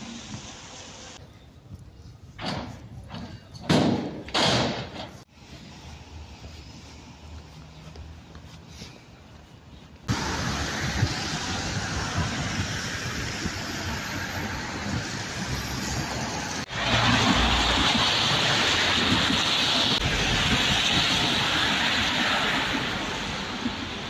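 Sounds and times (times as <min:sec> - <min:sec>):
road traffic passing: 0:02.6 - 0:24.0
wind on microphone: 0:10.1 - 0:24.0.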